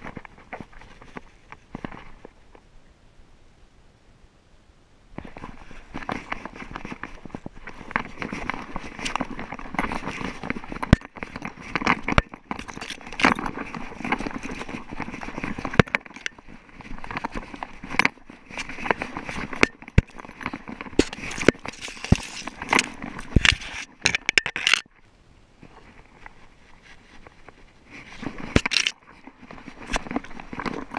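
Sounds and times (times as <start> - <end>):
rocks crunching underfoot: 5.2 - 24.9, 25.6 - 30.9
dry grass crackling and scraping: 5.2 - 30.9.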